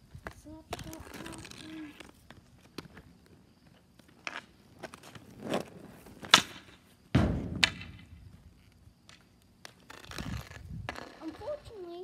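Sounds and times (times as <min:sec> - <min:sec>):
hockey stick clicks and scrape: 0:00.7 - 0:03.1, 0:09.1 - 0:11.6
hockey stick striking ball: 0:06.2 - 0:08.2
deep booming thud: 0:07.1 - 0:08.3.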